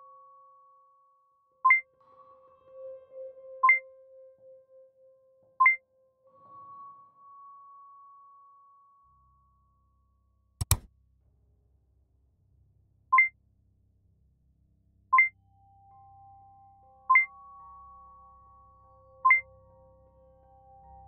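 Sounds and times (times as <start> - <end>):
sharp click: 10.6 - 10.9.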